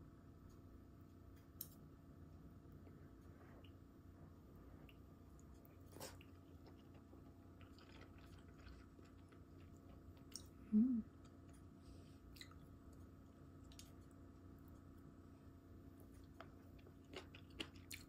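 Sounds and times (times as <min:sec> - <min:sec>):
chewing noodles: 0:04.7 - 0:10.6, 0:16.0 - 0:18.0
person humming: 0:10.7 - 0:11.1.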